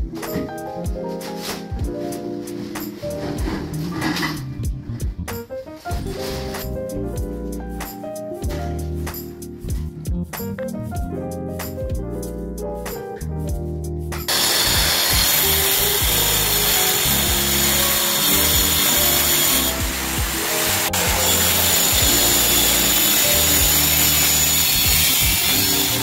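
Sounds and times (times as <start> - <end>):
background music with bass: 0.0 - 26.0
power tool whirring: 14.3 - 26.0.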